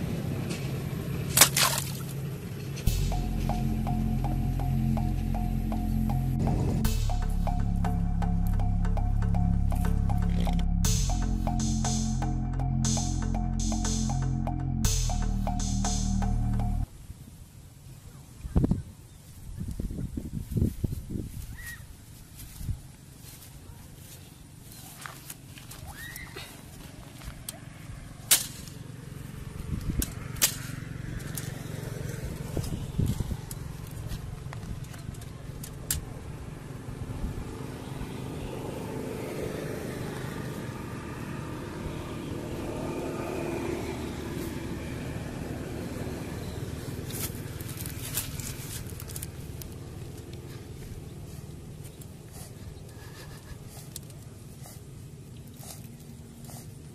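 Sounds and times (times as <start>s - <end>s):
vehicle engine rumbling: 0.0s - 17.0s, 19.9s - 56.9s
faint outdoor background: 0.0s - 56.9s
loud low thump: 6.3s - 16.8s.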